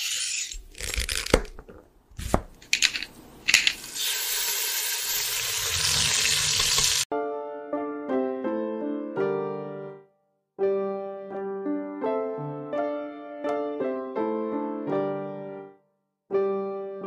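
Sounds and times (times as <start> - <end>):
piano music: 7.1 - 17.0.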